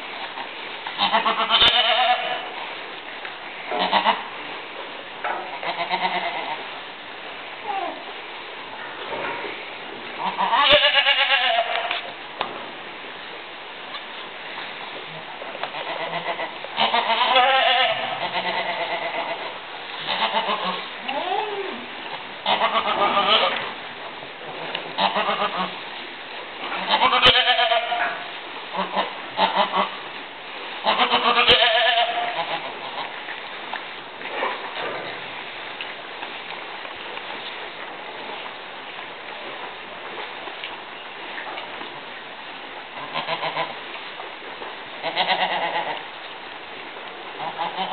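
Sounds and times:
goat bleating: 1.0s - 2.5s, 3.8s - 4.2s, 5.6s - 6.6s, 10.2s - 12.0s, 15.7s - 21.7s, 22.4s - 23.7s, 25.0s - 25.7s, 26.8s - 30.0s, 30.8s - 33.1s, 43.1s - 43.7s, 45.0s - 46.0s, 47.4s - 47.9s.

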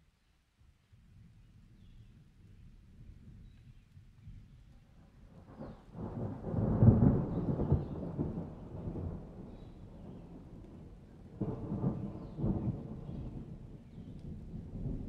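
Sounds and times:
thunder rumbling: 5.4s - 15.0s.

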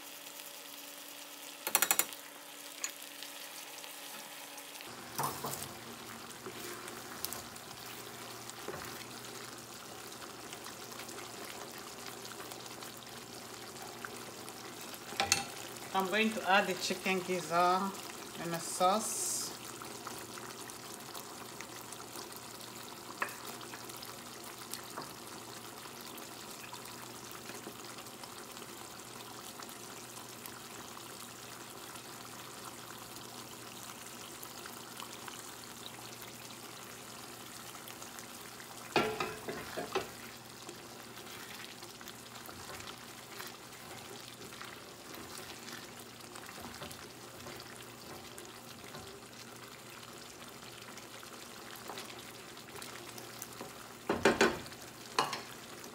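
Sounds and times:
sauce simmering and sizzling: 0.0s - 55.9s
spoon and bowl knocking on pot: 1.6s - 2.2s, 15.2s - 15.6s, 39.0s - 40.1s, 54.1s - 55.5s.

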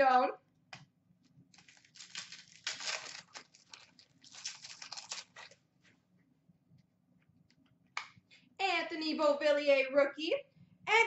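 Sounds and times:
card pack wrapper tearing: 1.5s - 5.6s.

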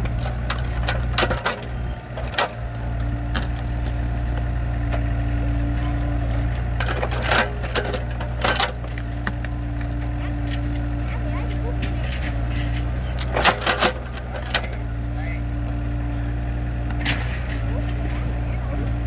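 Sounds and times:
excavator engine running: 0.0s - 19.0s
tree stump cracking: 2.5s - 4.5s.

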